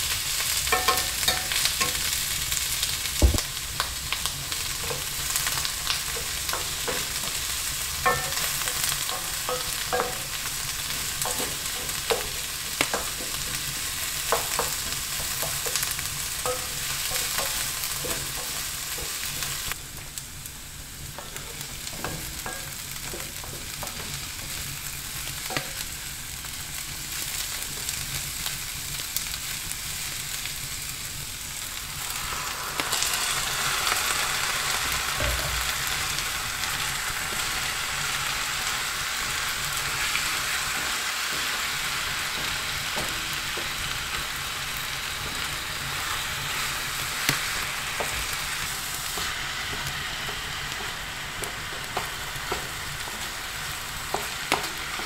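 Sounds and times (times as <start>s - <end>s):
food sizzling in a frying pan: 0.0s - 55.0s
utensil knocking on pan: 8.0s - 10.4s, 35.2s - 35.8s.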